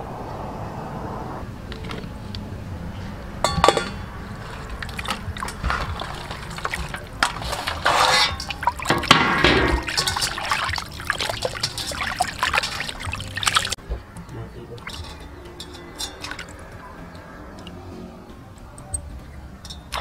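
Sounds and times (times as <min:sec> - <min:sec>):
water splashing in metal bowl: 0:03.4 - 0:13.8, 0:14.7 - 0:18.2.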